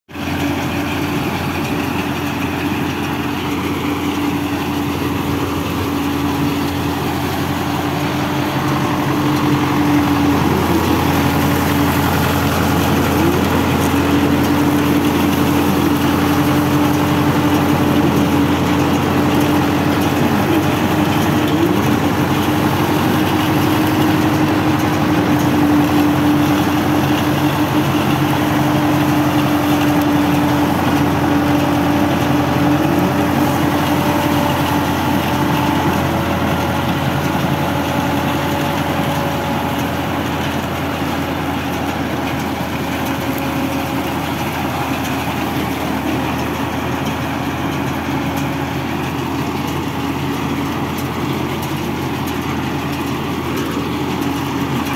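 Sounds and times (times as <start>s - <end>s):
tractor diesel engine running: 0.1s - 54.9s
baler machinery hum: 0.2s - 54.9s.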